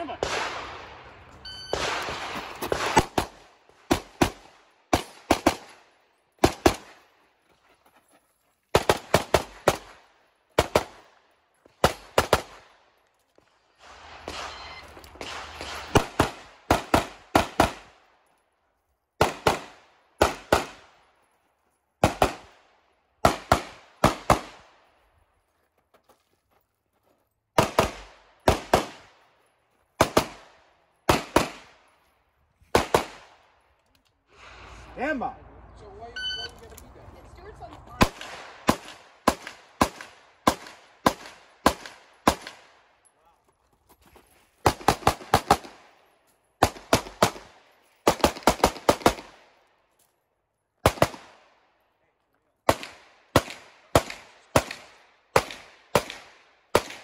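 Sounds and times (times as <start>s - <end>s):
pistol shots: 0.0s - 5.8s, 6.4s - 7.0s, 11.8s - 12.7s, 13.8s - 18.0s, 19.2s - 20.9s, 22.0s - 22.6s, 23.2s - 24.8s, 27.6s - 29.2s, 30.0s - 31.8s, 32.7s - 33.4s, 38.0s - 42.8s, 44.6s - 45.9s, 46.6s - 49.4s, 50.8s - 51.4s, 52.6s - 57.0s.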